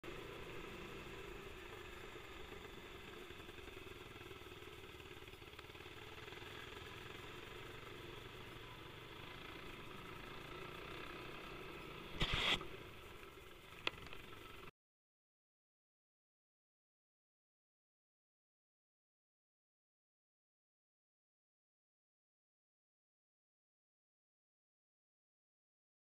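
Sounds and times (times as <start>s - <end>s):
motorcycle engine running: 0.0s - 14.7s
glove rubbing camera lens: 12.2s - 12.7s.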